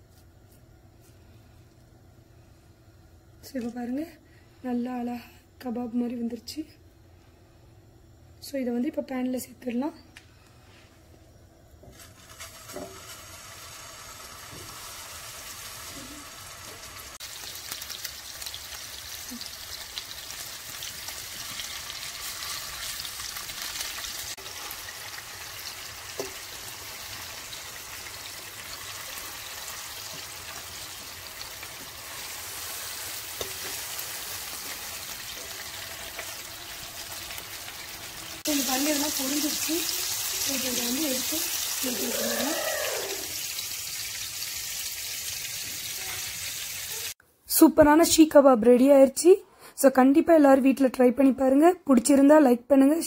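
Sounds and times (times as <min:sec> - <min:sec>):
meat sizzling in oil: 0:11.9 - 0:47.2.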